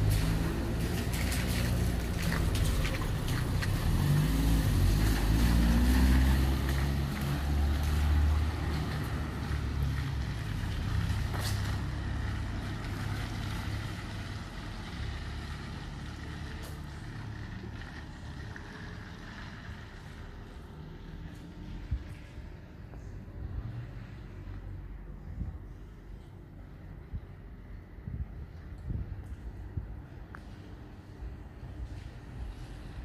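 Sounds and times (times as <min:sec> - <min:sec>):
vehicle engine pulling away: 0:00.0 - 0:24.9.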